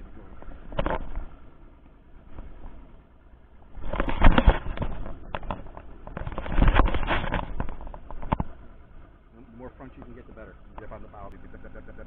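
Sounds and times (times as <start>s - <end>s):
microphone crackling and rumble: 0.0s - 1.4s, 3.6s - 9.0s.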